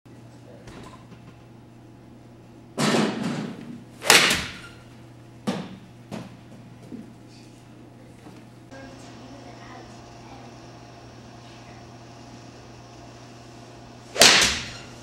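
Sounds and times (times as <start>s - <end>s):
golf club striking ball: 14.1s - 14.7s.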